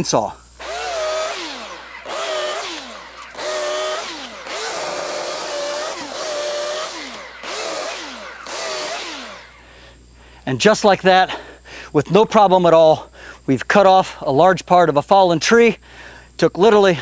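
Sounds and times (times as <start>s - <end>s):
electric chainsaw cutting: 0.6s - 9.9s.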